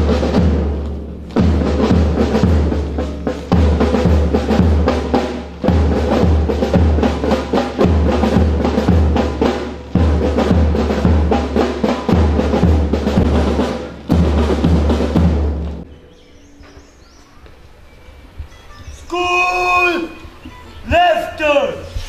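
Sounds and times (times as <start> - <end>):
marching drums: 0.0 - 15.9.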